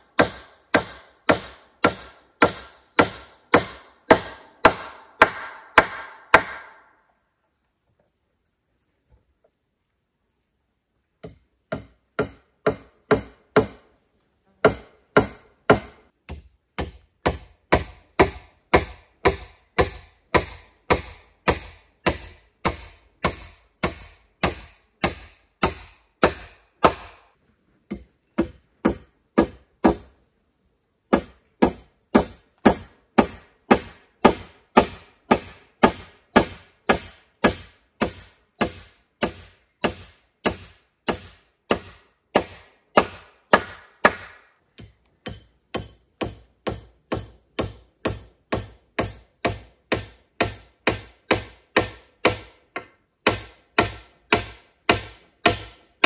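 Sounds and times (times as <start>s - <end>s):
tool striking wood: 0.2s - 6.9s, 11.2s - 13.9s, 14.6s - 27.2s, 27.9s - 30.2s, 31.1s - 55.8s.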